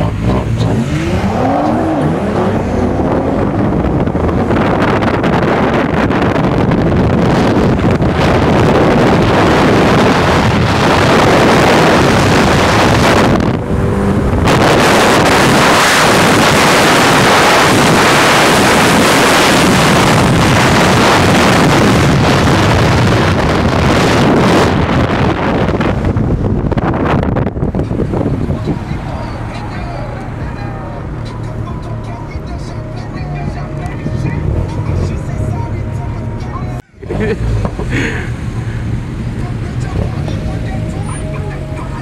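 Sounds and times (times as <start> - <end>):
car engine and road noise: 0.0 - 42.0
wind buffeting microphone: 1.8 - 30.4.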